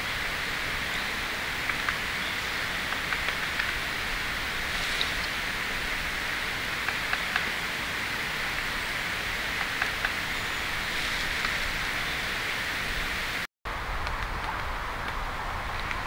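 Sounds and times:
steady hiss: 0.0s - 16.0s
woodpecker tapping bark: 1.6s - 3.9s.

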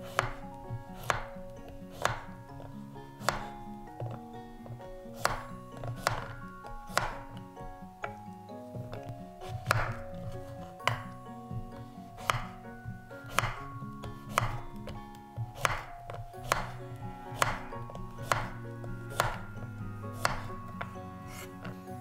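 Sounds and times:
knife chopping on wooden board: 0.0s - 7.4s, 8.8s - 11.2s, 11.8s - 12.6s, 13.2s - 21.8s
quiet background music: 0.0s - 22.0s.

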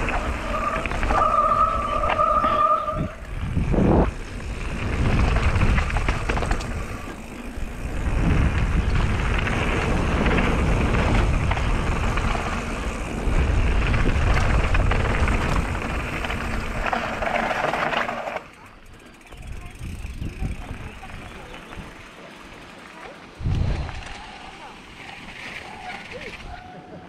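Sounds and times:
wind buffeting microphone: 0.0s - 17.4s, 19.3s - 22.0s, 23.4s - 24.4s
bike tyres crunching on gravel: 0.0s - 26.5s.

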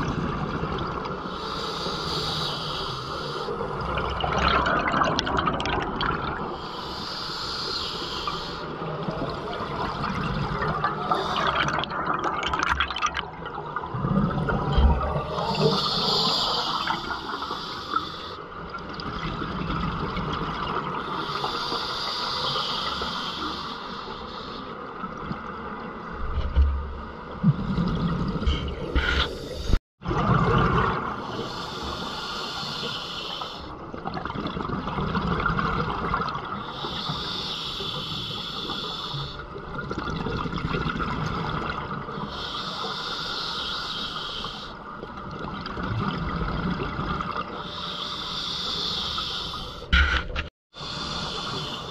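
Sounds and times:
regulator inhalation hiss: 1.3s - 3.6s, 6.6s - 8.7s, 15.3s - 18.4s, 21.0s - 24.7s, 31.3s - 33.7s, 36.6s - 39.4s, 42.3s - 44.8s, 47.6s - 50.2s, 50.8s - 51.9s
exhaled bubbles rumbling: 3.6s - 6.6s, 8.9s - 15.9s, 27.4s - 31.4s, 33.9s - 36.6s, 39.6s - 42.2s.

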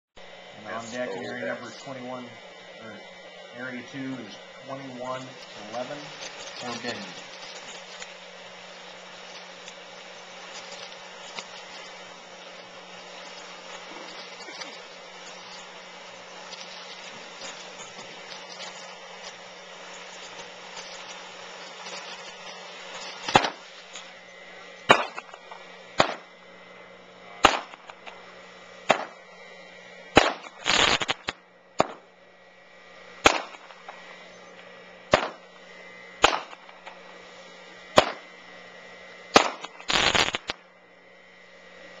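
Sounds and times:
firework spark fountain hissing: 0.2s - 32.1s, 32.8s - 40.7s
rapid firework crackling: 3.6s - 24.2s, 24.8s - 26.4s, 27.3s - 29.3s, 30.0s - 32.1s, 33.0s - 34.1s, 35.0s - 38.3s, 39.3s - 40.6s
sharp firework bangs: 23.2s - 23.6s, 24.9s - 25.4s, 26.0s - 26.2s, 27.4s - 28.2s, 28.8s - 29.2s, 30.1s - 32.1s, 33.2s - 33.7s, 35.1s - 35.5s, 36.2s - 37.0s, 38.0s - 38.3s, 39.3s - 40.5s.

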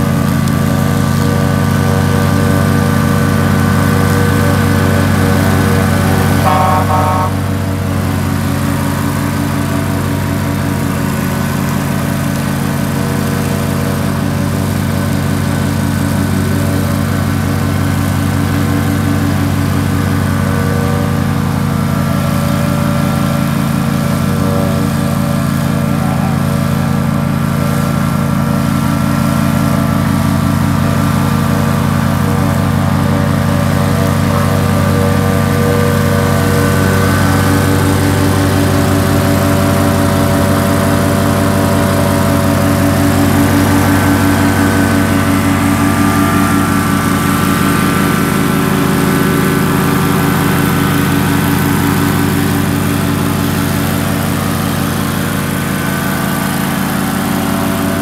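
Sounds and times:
mower engine running: 0.0s - 58.0s.

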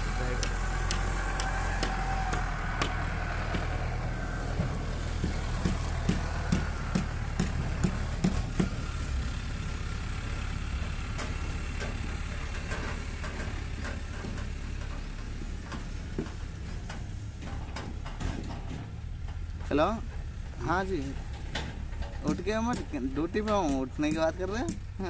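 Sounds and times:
low engine-like hum: 0.0s - 25.0s
sharp clicks and light knocks: 11.1s - 25.0s.

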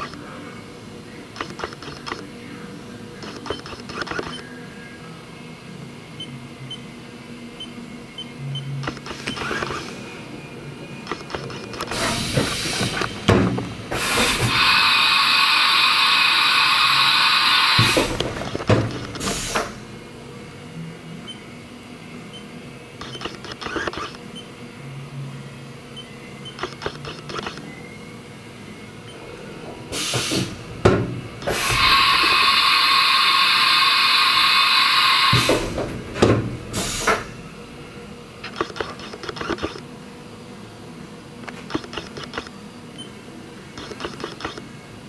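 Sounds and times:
loud air hiss: 11.9s - 13.2s, 13.9s - 18.2s, 19.2s - 19.8s, 29.9s - 30.6s, 31.4s - 35.8s, 36.7s - 37.3s
machine tool changer knock: 17.7s - 19.8s, 35.3s - 37.3s
machine clicks and clunks: 17.8s - 19.8s.

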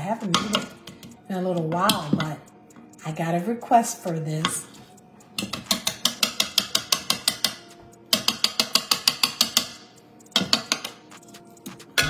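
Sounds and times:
whisk clicking against bowl: 5.4s - 9.7s.

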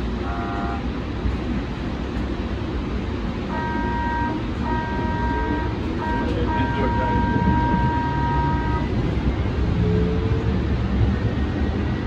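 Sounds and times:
tram rumbling along track: 0.0s - 12.0s
multi-tone warning toot: 3.5s - 8.9s
pulsing multi-tone warning sound: 3.6s - 8.9s.

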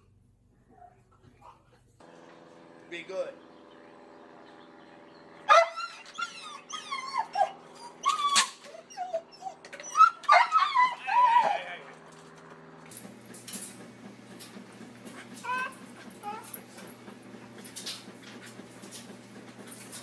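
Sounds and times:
dog whining and yipping: 5.5s - 11.8s, 15.1s - 16.8s.

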